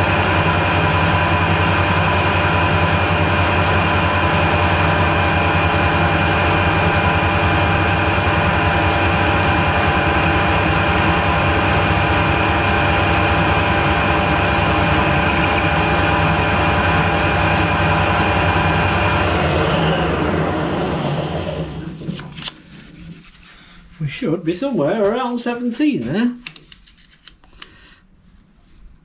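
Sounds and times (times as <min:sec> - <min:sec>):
metal lathe whining: 0:00.0 - 0:22.3.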